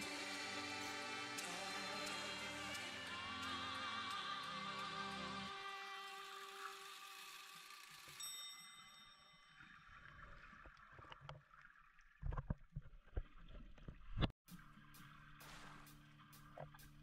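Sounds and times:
water and boat motor: 0:00.0 - 0:05.6.

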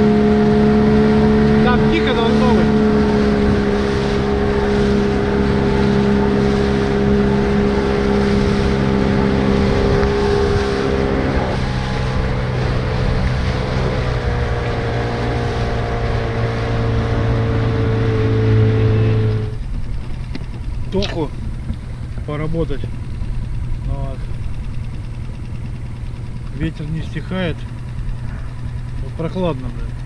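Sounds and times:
wind buffeting microphone: 0:00.0 - 0:19.0
boat through choppy water: 0:00.0 - 0:30.0
outboard motor running: 0:00.0 - 0:30.0.

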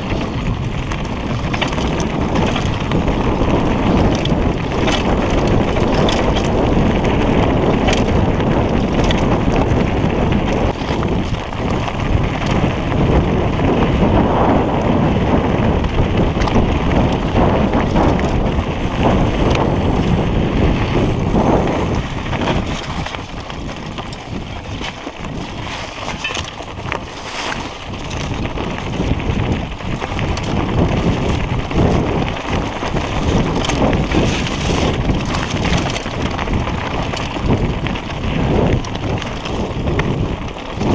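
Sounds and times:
bike rattling: 0:00.0 - 0:40.9
wind on microphone: 0:00.0 - 0:40.9
tyres crunching on stones: 0:16.0 - 0:40.9.

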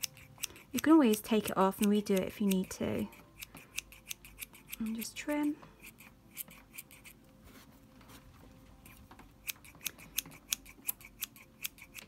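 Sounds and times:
small scissors snipping: 0:00.0 - 0:05.2, 0:08.8 - 0:12.0.

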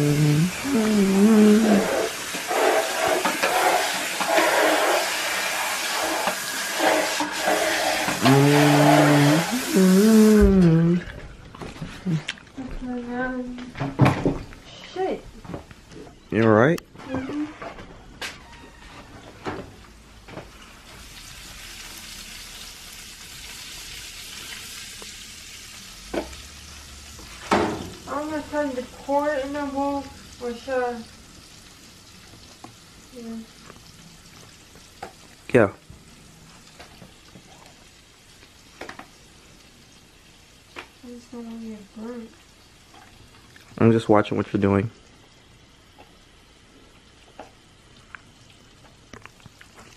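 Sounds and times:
chicken sizzling in a frying pan: 0:01.5 - 0:10.3, 0:19.9 - 0:49.9
tap water running into sink: 0:01.6 - 0:09.8.

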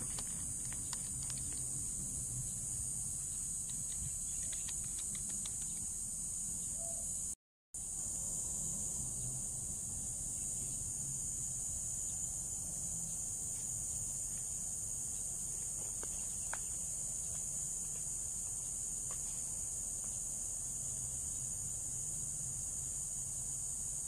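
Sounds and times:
high-pitched insect chorus: 0:00.0 - 0:24.0
faint clicks: 0:03.6 - 0:05.9.

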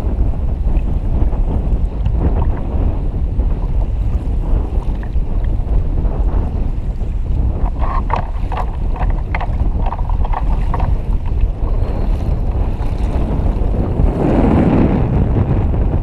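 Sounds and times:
choppy sea: 0:00.0 - 0:16.0
heavy low rumble: 0:00.0 - 0:16.0
rush of water: 0:00.0 - 0:16.0
strong wind buffeting microphone: 0:00.0 - 0:16.0.

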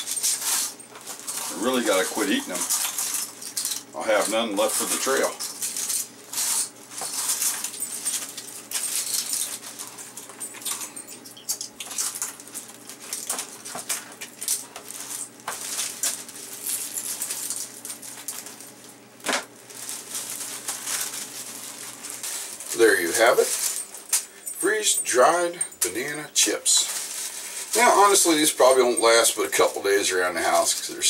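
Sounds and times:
dry chips clicking together: 0:00.0 - 0:18.6
plastic bag crinkling: 0:00.0 - 0:31.0.

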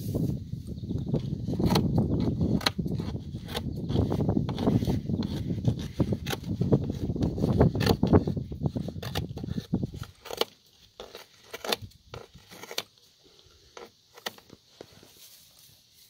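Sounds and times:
tape scraping and clicking: 0:01.0 - 0:15.2
rustling handling noise: 0:09.0 - 0:16.0.

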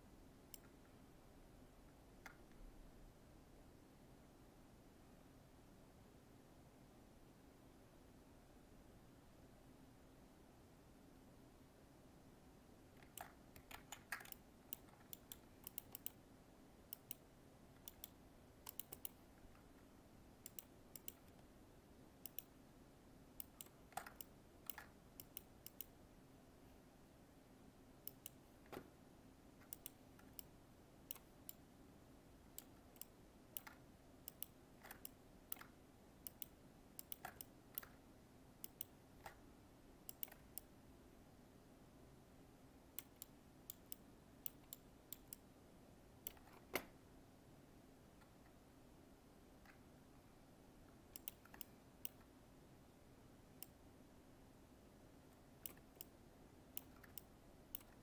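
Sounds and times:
faint low hum: 0:00.0 - 0:58.0
mouse and keyboard clicks: 0:00.5 - 0:00.8, 0:13.0 - 0:16.2, 0:16.9 - 0:19.7, 0:20.4 - 0:21.5, 0:22.2 - 0:22.6, 0:23.4 - 0:26.0, 0:28.0 - 0:28.9, 0:29.6 - 0:30.5, 0:31.1 - 0:31.6, 0:32.5 - 0:38.0, 0:38.6 - 0:39.4, 0:40.1 - 0:40.7, 0:43.0 - 0:45.4, 0:46.2 - 0:47.0, 0:51.1 - 0:52.3, 0:55.6 - 0:58.0.

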